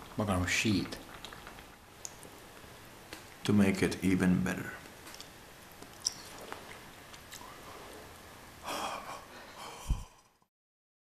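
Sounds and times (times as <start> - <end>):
man breathing out: 8.6 - 10.3.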